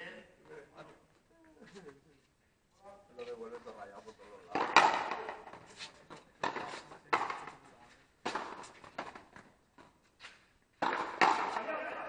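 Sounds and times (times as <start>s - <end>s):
ball hitting rackets and wall: 4.5s - 12.0s.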